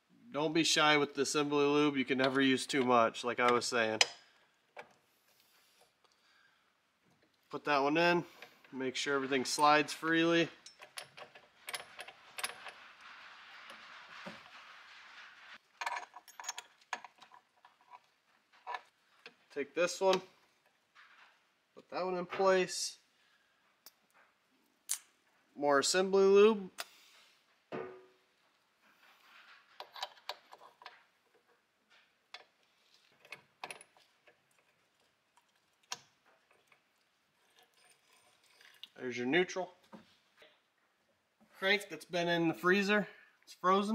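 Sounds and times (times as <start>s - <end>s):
metal parts clinking: 15.8s - 18.9s.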